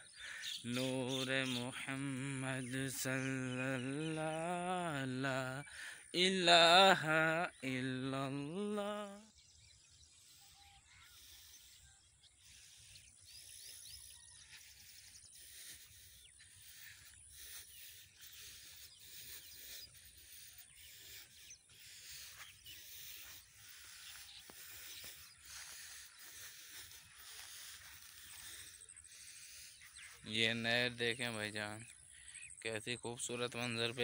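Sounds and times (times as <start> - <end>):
footsteps on sandy dirt: 21.7 - 29.1.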